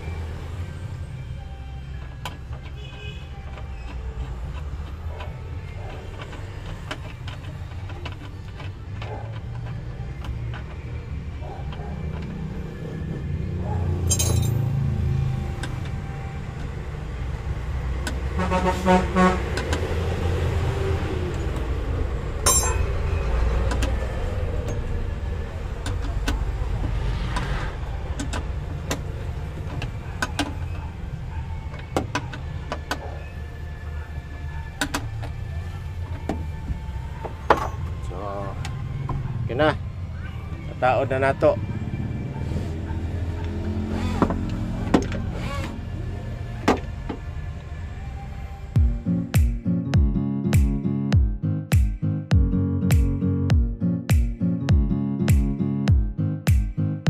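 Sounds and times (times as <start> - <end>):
steady low rumble: 48.8 - 56.8.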